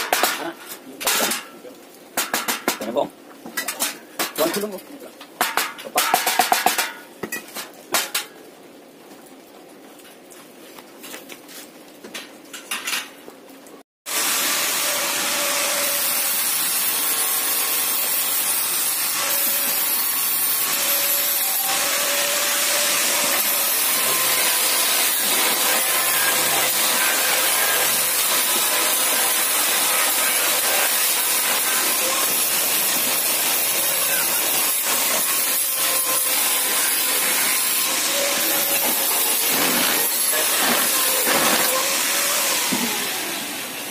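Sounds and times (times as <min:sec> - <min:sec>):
loud steady hiss: 0:14.1 - 0:43.9.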